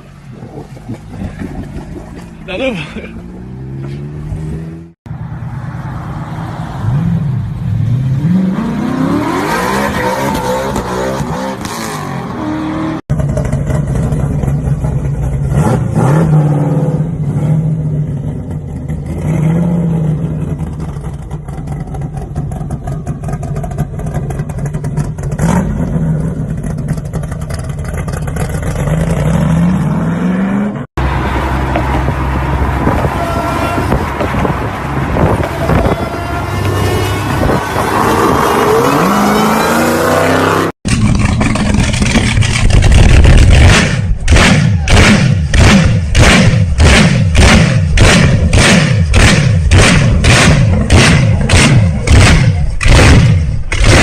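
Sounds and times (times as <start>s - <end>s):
car engine revving: 7.8s - 54.0s
car engine idling and blipped: 12.9s - 30.1s, 30.7s - 54.0s.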